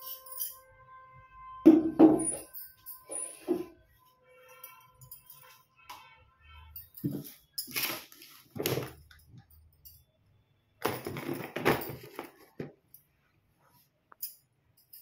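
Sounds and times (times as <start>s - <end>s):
rustling and scraping handling noise: 7.0s - 9.2s, 10.8s - 14.3s.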